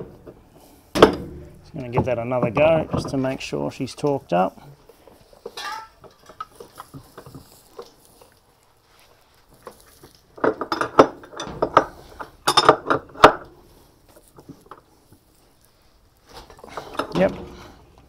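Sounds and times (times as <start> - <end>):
metal tools clinking: 5.4 - 8.1, 9.6 - 13.5.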